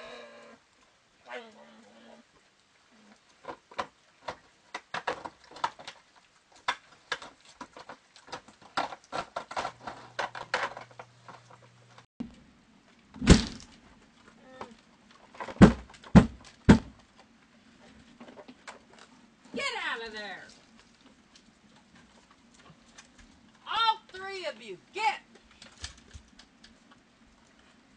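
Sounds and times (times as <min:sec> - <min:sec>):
animals crunching dry food: 0:01.9 - 0:12.0, 0:17.1 - 0:23.6, 0:25.3 - 0:27.9
thumps on wooden deck: 0:15.5 - 0:17.0.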